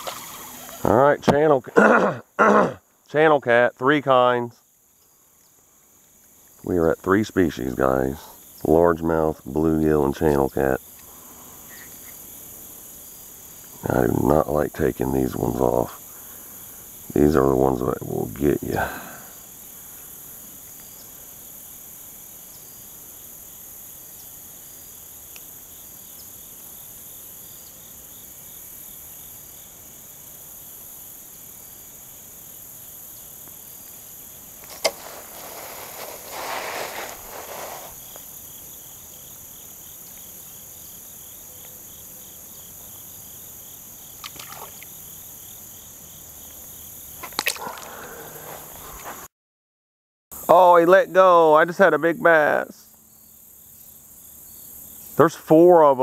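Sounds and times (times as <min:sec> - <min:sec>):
fish splashing into water: 0:00.0 - 0:00.7, 0:44.2 - 0:44.9, 0:47.2 - 0:48.0
insects trilling: 0:00.0 - 0:49.3, 0:50.4 - 0:56.0.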